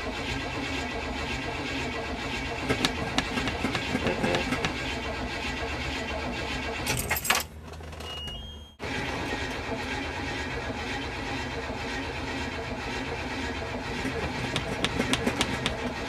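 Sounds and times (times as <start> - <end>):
car engine cranking: 0.0 - 16.0.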